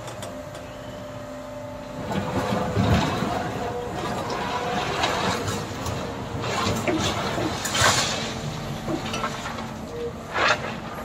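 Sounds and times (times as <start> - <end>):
faint hydraulic whine: 0.0 - 4.7
excavator engine running: 0.0 - 11.0.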